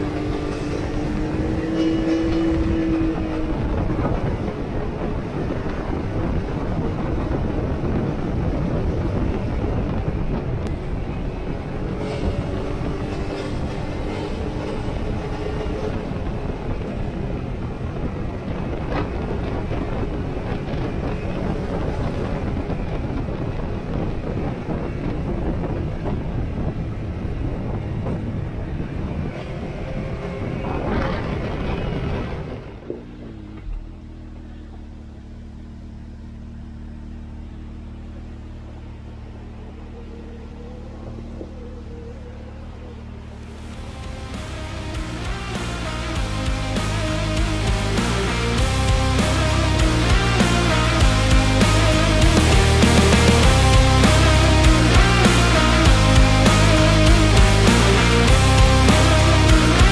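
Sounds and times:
wind noise: 0.0 - 33.8
tyres on rough gravel road: 0.0 - 59.9
vehicle engine running: 0.0 - 59.9.

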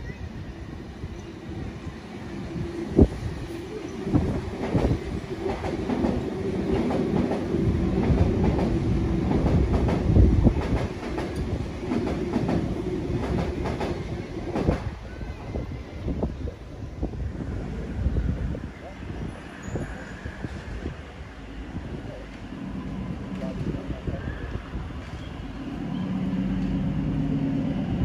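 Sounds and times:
train hum and rumble: 0.0 - 28.0
train wheels clacking: 3.9 - 15.0.

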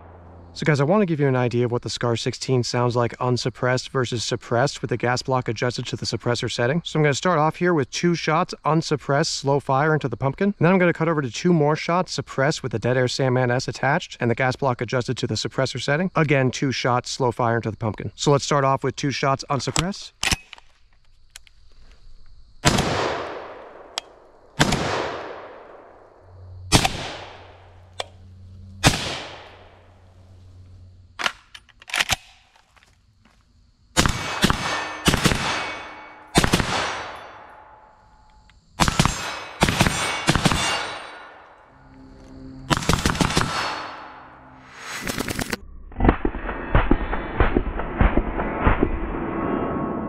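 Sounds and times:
suppressed rifle shots: 22.6 - 26.0, 26.7 - 28.2, 28.8 - 29.9, 34.0 - 37.5, 38.8 - 41.4, 42.7 - 44.2, 46.0 - 49.1
rifle shots echoing: 22.6 - 26.1, 26.7 - 28.2, 28.8 - 29.9, 34.0 - 37.7, 38.8 - 41.6, 42.7 - 44.3.

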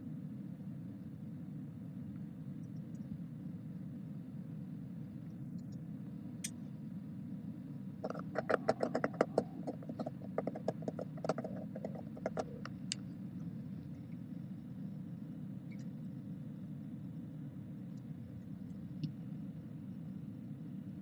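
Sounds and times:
low room hum: 0.0 - 21.0
typing on laptop keyboard: 8.0 - 12.9.

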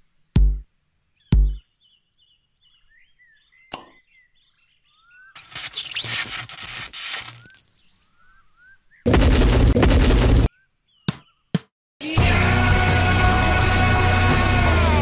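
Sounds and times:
birds chirping: 0.0 - 9.1, 10.5 - 11.7.

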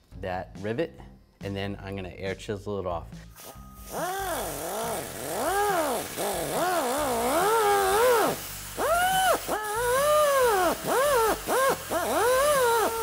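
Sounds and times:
cutoff wheel grinding steel: 3.9 - 13.0.

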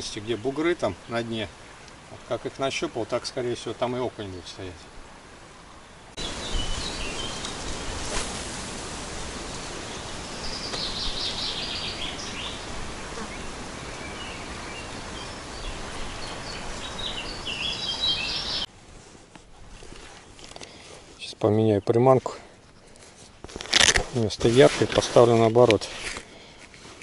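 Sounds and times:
songbirds chirping: 0.0 - 8.3, 9.0 - 18.7, 19.4 - 23.6
steady rushing outdoor noise: 0.0 - 18.8.

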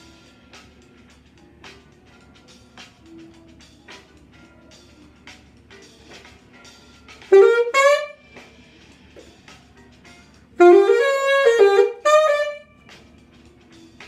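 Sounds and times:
saxophone melody: 7.2 - 8.4, 10.6 - 12.9.

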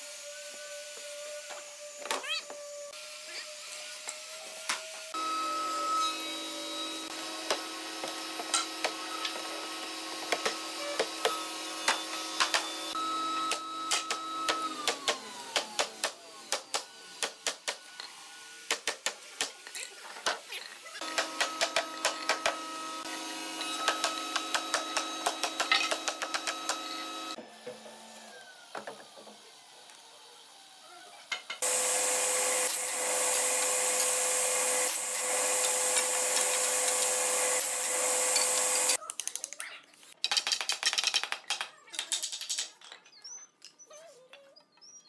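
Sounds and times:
table saw cutting timber: 2.9 - 18.7, 20.9 - 30.5, 31.6 - 39.0.

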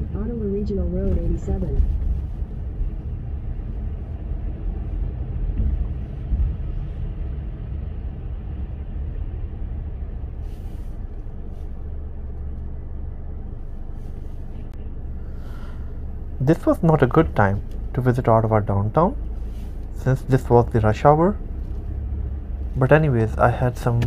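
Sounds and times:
car driving in traffic: 0.0 - 24.0
car bump: 5.4 - 7.0.

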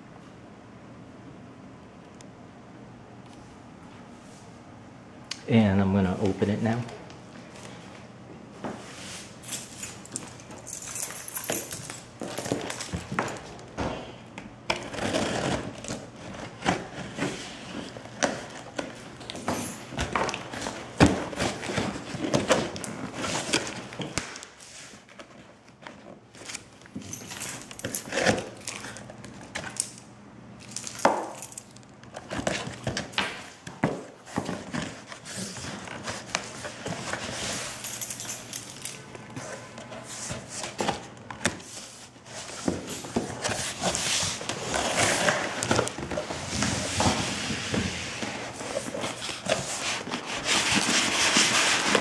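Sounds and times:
cardboard scraping and rustling: 14.7 - 26.7, 33.8 - 37.8, 39.3 - 52.0.

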